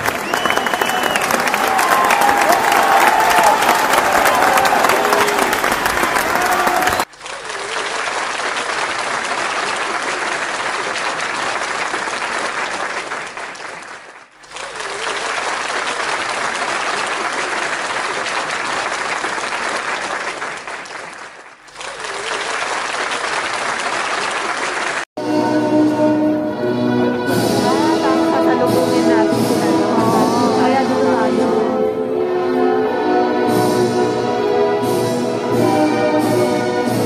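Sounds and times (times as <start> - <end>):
crowd applauding: 0.0 - 25.1
music: 25.2 - 37.0.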